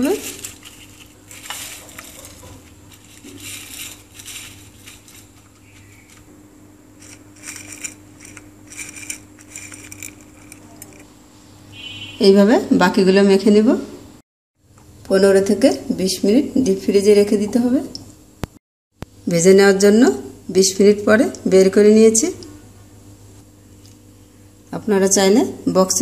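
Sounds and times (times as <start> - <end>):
dry noodles crackling on plate: 0.0 - 6.3.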